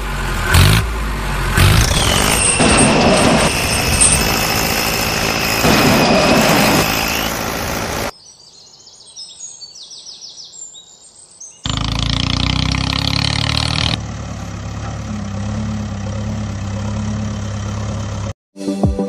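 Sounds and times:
heavy truck engine running: 0.0s - 8.1s, 11.7s - 18.4s
birds chirping: 5.8s - 14.0s.

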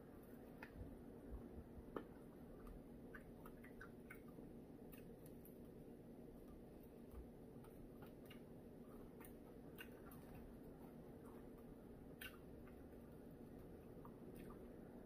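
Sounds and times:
low room hum: 0.0s - 15.0s
person chewing: 1.9s - 15.0s
mouth clicks: 12.1s - 12.8s.

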